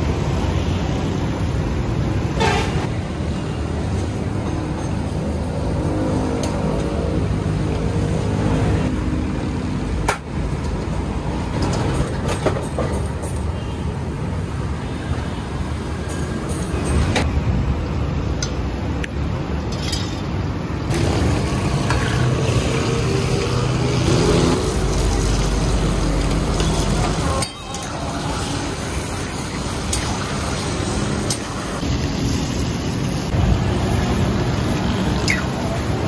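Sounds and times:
gas burner roaring: 0:20.7 - 0:36.0
chicken sizzling in oil: 0:20.9 - 0:35.6.

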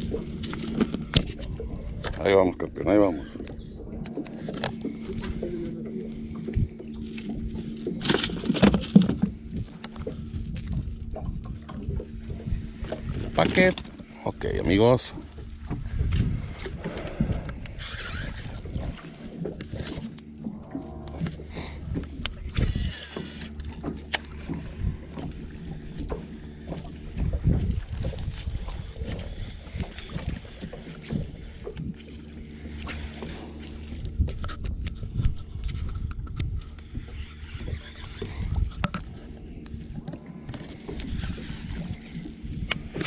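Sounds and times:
electric trolling motor humming: 0:00.0 - 0:43.0
footsteps on boat deck: 0:03.4 - 0:17.7, 0:18.5 - 0:43.0.

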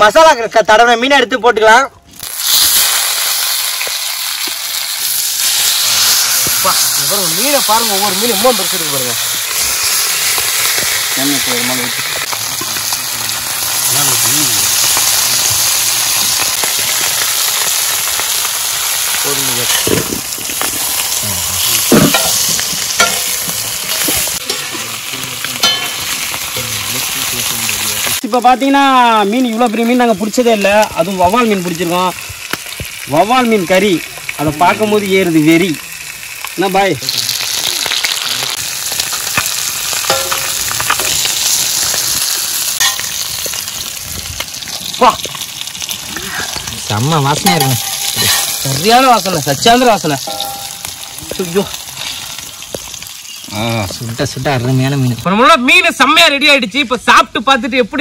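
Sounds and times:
oil popping: 0:02.1 - 0:28.2, 0:29.4 - 0:54.4
fish sizzling in hot oil: 0:02.2 - 0:56.0
metal spatula scraping pan: 0:05.4 - 0:08.6, 0:47.4 - 0:48.9.

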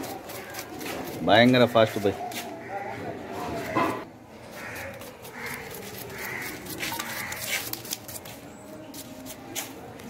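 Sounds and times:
knife slicing onions: 0:00.0 - 0:01.7, 0:04.5 - 0:08.3
crow cawing: 0:01.8 - 0:07.6.

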